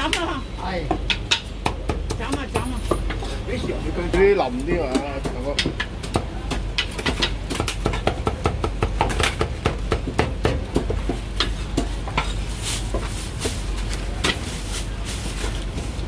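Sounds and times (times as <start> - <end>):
cleaver chopping on wooden block: 4.8 - 12.3.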